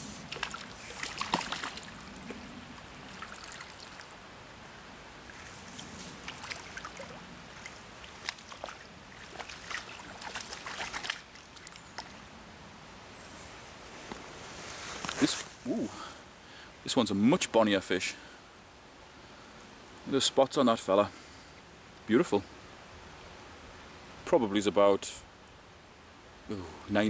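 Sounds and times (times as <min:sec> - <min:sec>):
river flowing: 0:00.0 - 0:17.4
fish splashing at surface: 0:00.2 - 0:02.0, 0:06.2 - 0:11.8.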